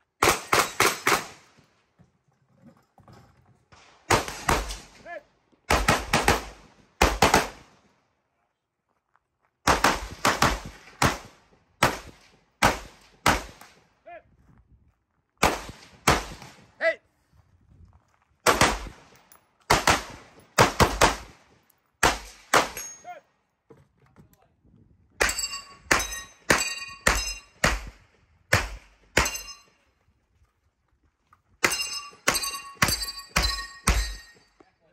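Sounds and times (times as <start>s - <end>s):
rifle shots: 0.2s - 1.5s, 4.1s - 5.0s, 5.7s - 7.7s, 9.7s - 13.8s, 15.4s - 16.7s, 18.4s - 21.4s, 22.0s - 22.9s, 25.2s - 29.5s
metallic ring of steel targets: 22.7s - 23.2s, 25.2s - 27.7s, 29.1s - 29.8s, 31.6s - 34.6s.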